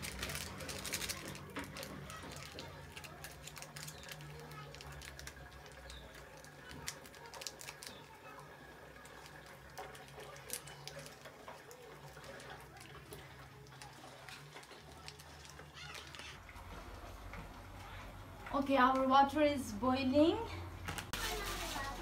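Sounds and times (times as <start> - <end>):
plastic sachet crinkling and tearing: 0.0 - 16.4, 21.0 - 22.0.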